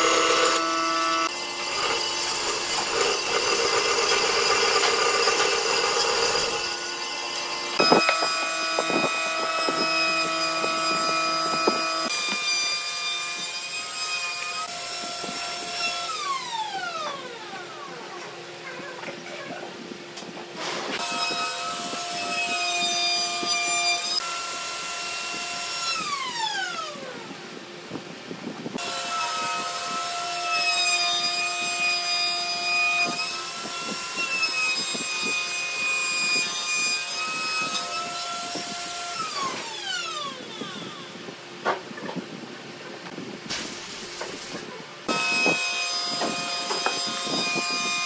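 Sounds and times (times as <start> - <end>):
power tool motor whining: 0.0 - 18.1, 43.7 - 48.0.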